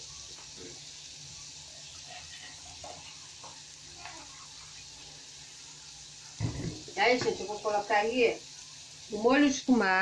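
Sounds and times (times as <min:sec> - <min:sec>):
onion frying in oil: 0:00.0 - 0:10.0.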